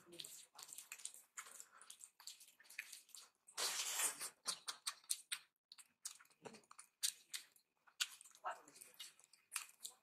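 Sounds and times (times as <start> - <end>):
hand kneading wet food squishes: 0.0 - 10.0.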